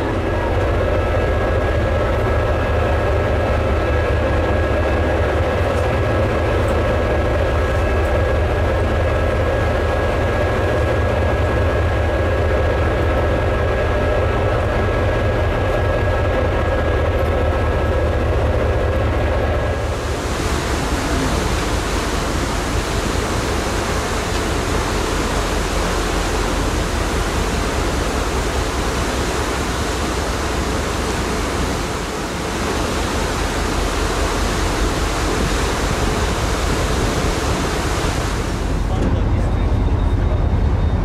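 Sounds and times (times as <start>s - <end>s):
sea rushing: 0.0s - 40.7s
wind buffeting microphone: 34.4s - 39.3s.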